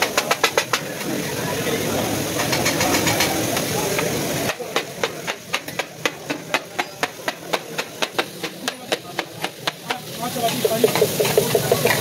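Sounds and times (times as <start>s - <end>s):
faint sizzle: 0.0s - 12.0s
metal spatulas clanking on iron pan: 2.4s - 3.7s, 4.5s - 12.0s.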